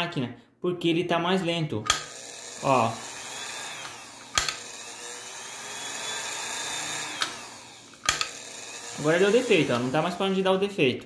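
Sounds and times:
sharp clicks: 1.8s - 2.2s, 3.8s - 4.7s, 7.1s - 8.4s
sewing machine motor whirring: 1.9s - 10.6s.

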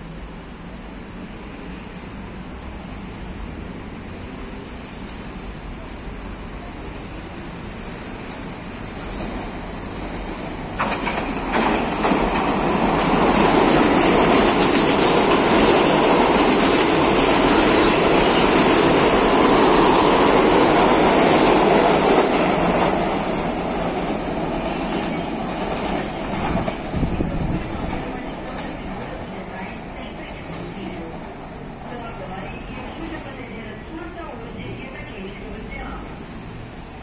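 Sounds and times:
train rumbling past: 0.0s - 37.0s
wheels clattering on rails: 8.1s - 29.4s.

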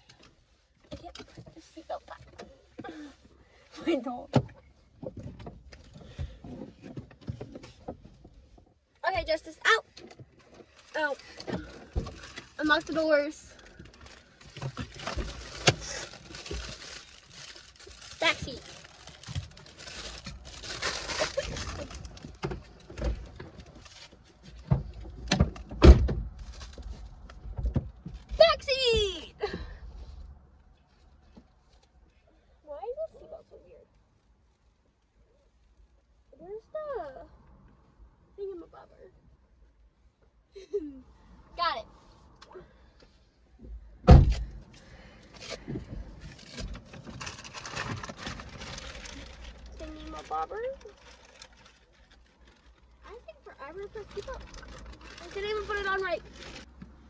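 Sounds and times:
knocks and thumps inside a car: 4.3s - 9.3s, 24.4s - 29.7s, 43.6s - 44.6s
rustling: 4.6s - 25.3s, 40.6s - 57.0s
heavy thump inside car: 43.6s - 44.6s.

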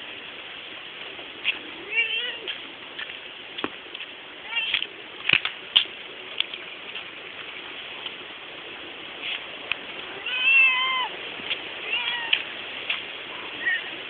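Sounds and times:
faint clicks: 2.5s - 7.1s
cat meowing: 4.4s - 4.8s, 10.1s - 11.1s, 11.8s - 12.5s.

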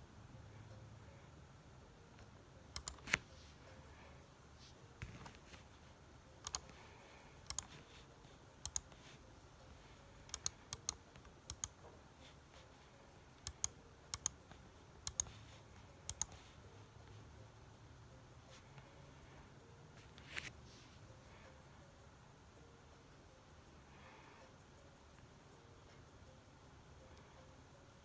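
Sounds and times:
computer mouse clicking: 2.2s - 3.3s, 6.4s - 6.8s, 7.4s - 8.0s, 8.6s - 9.1s, 10.2s - 11.9s, 13.4s - 16.5s.

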